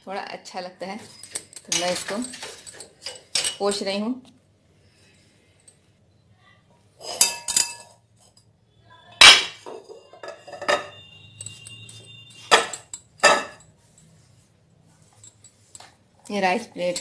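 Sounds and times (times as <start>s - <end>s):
crockery clattering: 7.0s - 8.0s, 9.2s - 13.7s.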